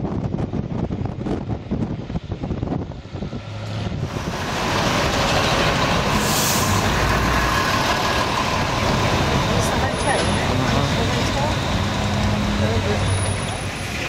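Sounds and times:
engine and road rumble: 0.0s - 14.0s
traffic noise: 0.0s - 14.0s
wind buffeting microphone: 0.0s - 14.0s.

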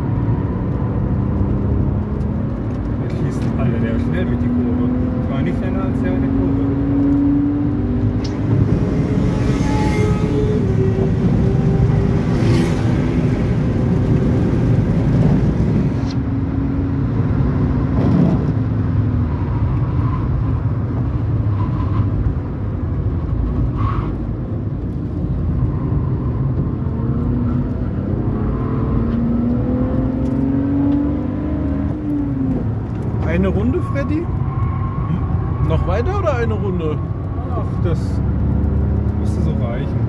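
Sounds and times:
tyre and wind noise: 6.7s - 33.4s.

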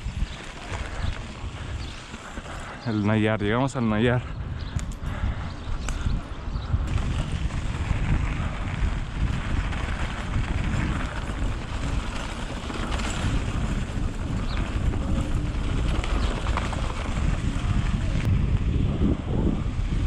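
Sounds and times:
bike tyre noise on dirt: 0.0s - 20.0s
wind buffeting microphone: 0.0s - 20.0s
bike rattling clicks: 4.7s - 5.2s.

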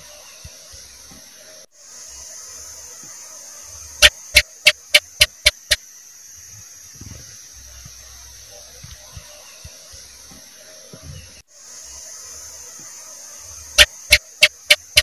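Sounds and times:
steady high hiss: 0.0s - 15.0s
gecko chirping: 4.0s - 5.8s, 13.8s - 15.0s.

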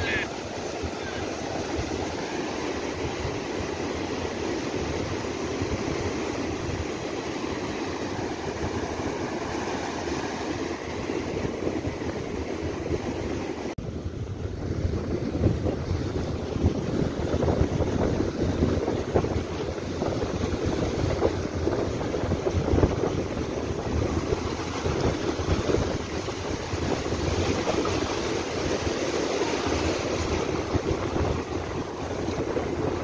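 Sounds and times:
waves breaking on beach: 0.0s - 33.0s
wind rumbling on microphone: 0.0s - 33.0s.

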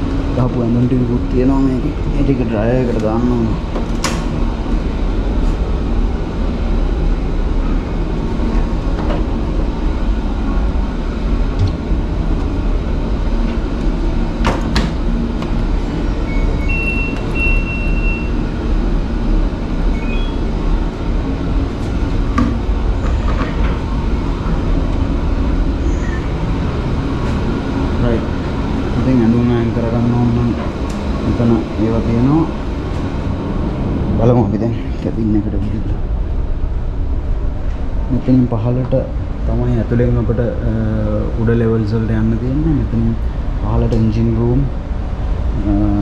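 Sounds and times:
low machinery rumble: 0.0s - 46.0s
electronic beeps: 16.2s - 18.4s, 19.9s - 20.5s.

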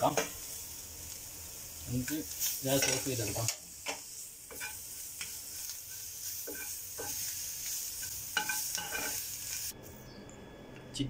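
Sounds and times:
food sizzling in a frying pan: 0.0s - 9.8s
metal spatula scraping pan: 8.0s - 9.2s.

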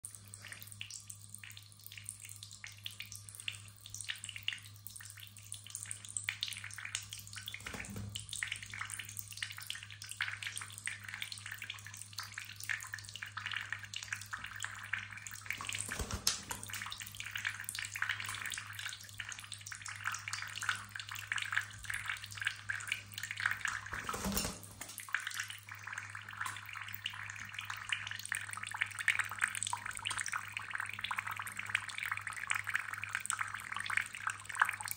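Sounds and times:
tap water running into sink: 7.4s - 9.0s, 13.3s - 27.4s
bird splashing in water: 15.5s - 16.9s, 23.8s - 25.0s.

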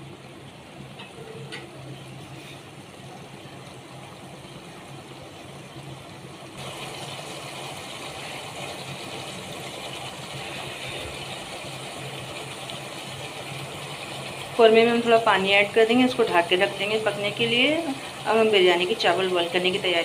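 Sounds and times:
gravy bubbling and sizzling: 0.0s - 20.0s.

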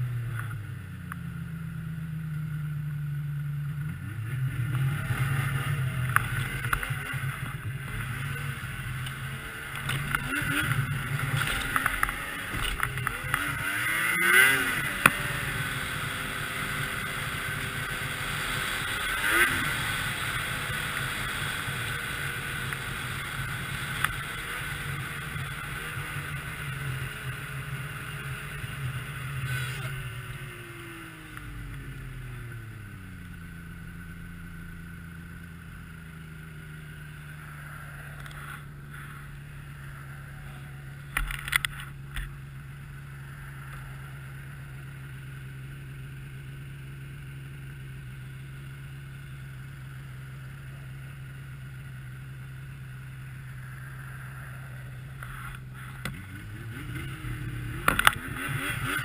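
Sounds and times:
snowmobile engine idling and revving: 0.0s - 59.0s.

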